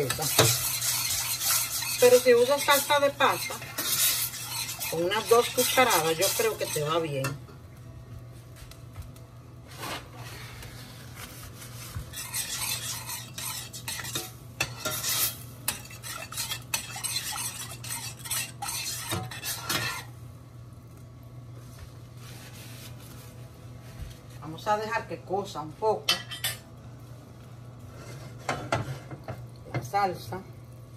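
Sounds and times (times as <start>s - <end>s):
metal spoon scraping a saucepan: 0.0s - 7.4s, 12.1s - 20.1s.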